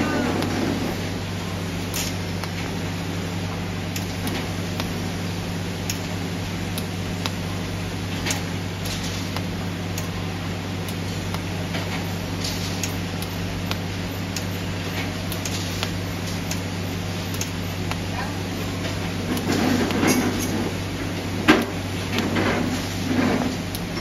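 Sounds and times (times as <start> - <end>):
low electrical hum: 0.0 - 24.0
welding ticks and crackles: 0.0 - 24.0.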